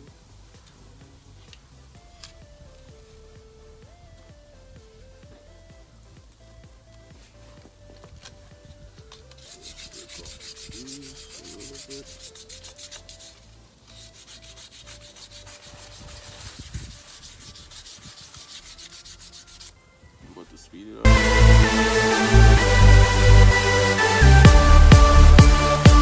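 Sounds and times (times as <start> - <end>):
loud electronic music: 2.0 - 7.6, 21.0 - 26.0
hand rubbing brake rotor: 7.6 - 19.8.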